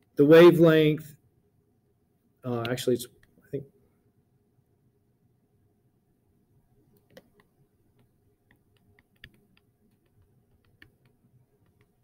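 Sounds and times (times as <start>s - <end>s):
low room hiss: 0.0s - 12.0s
stylus tapping on tablet screen: 7.0s - 12.0s.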